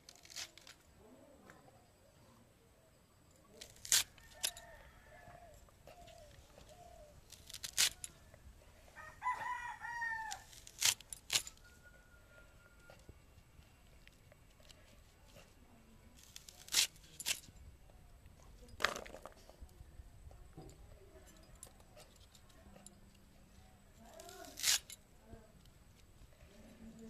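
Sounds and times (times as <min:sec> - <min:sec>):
rooster crowing: 0:04.2 - 0:05.6, 0:08.9 - 0:10.5.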